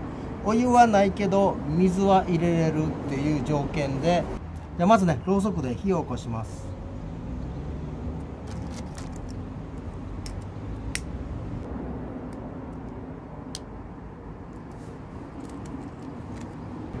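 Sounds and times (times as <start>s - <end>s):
steady low rumble: 9.6s - 17.0s.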